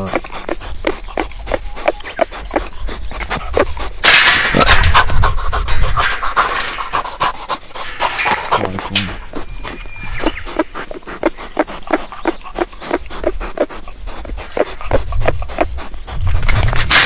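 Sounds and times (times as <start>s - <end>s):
boar huffing breaths: 0.0s - 17.0s
boar scuffling against wire cage: 0.0s - 17.0s.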